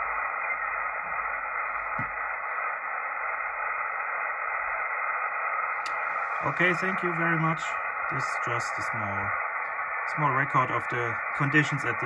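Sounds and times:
radio receiver hiss: 0:00.0 - 0:12.0
faint click: 0:05.8 - 0:06.0.

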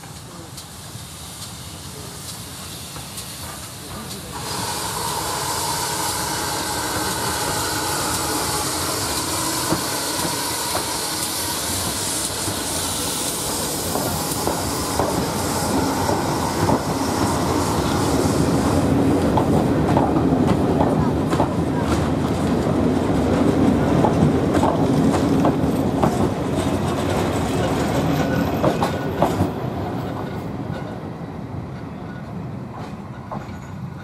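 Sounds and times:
steam hissing: 0:00.0 - 0:22.9.

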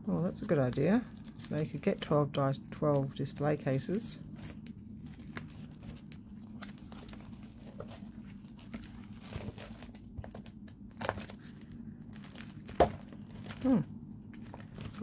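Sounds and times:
plastic sleeves crinkling: 0:00.4 - 0:15.0.

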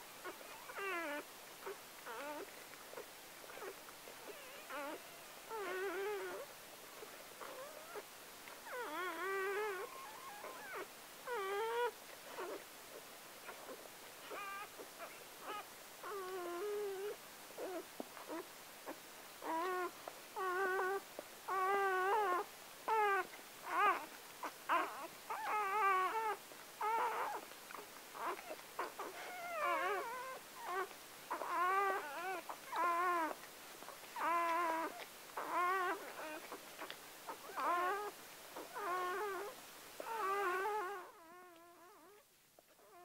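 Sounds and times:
puppy crying squeals: 0:04.3 - 0:06.4, 0:08.7 - 0:12.6, 0:14.3 - 0:18.4, 0:19.4 - 0:27.4, 0:28.2 - 0:33.4, 0:34.0 - 0:42.2.

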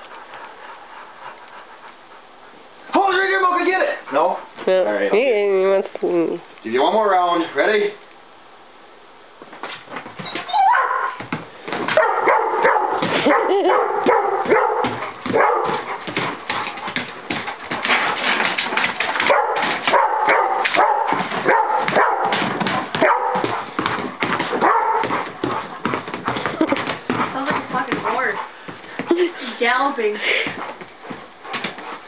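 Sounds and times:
dog barking and whining: 0:10.2 - 0:11.3, 0:11.9 - 0:16.8, 0:17.9 - 0:26.4.

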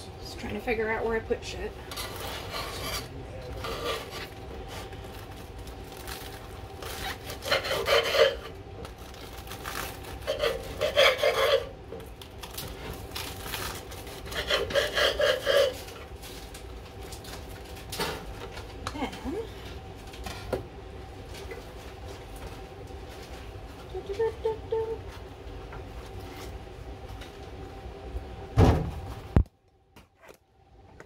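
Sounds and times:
knife sawing through bread: 0:01.9 - 0:04.9, 0:06.8 - 0:08.5, 0:10.1 - 0:11.7, 0:14.0 - 0:16.0.

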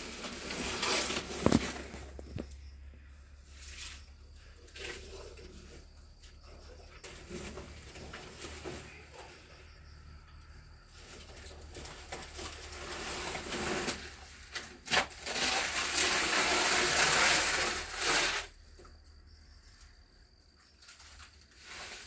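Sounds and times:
banana leaves rustling and tearing: 0:00.0 - 0:02.5, 0:11.0 - 0:18.6, 0:20.8 - 0:22.0.

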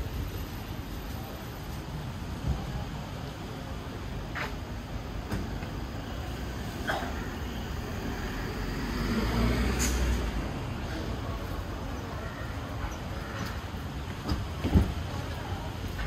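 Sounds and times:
traffic noise: 0:00.0 - 0:16.0
vehicle passing: 0:07.7 - 0:11.3.

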